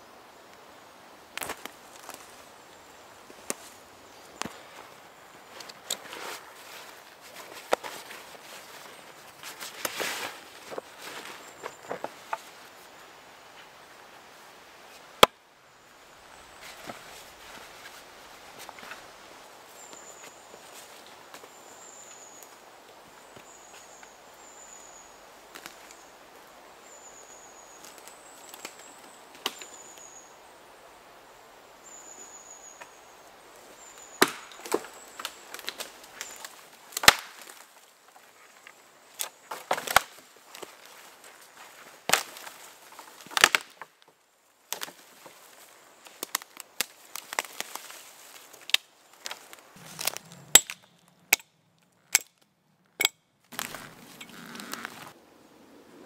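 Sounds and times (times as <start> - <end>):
axe striking tree trunk: 34.2 - 34.8, 37.0 - 37.5, 49.8 - 51.5
wood chopping and cracking: 34.2 - 37.6, 39.2 - 40.7, 42.1 - 44.0, 48.6 - 51.5, 53.0 - 55.1
bird calling: 53.0 - 55.2.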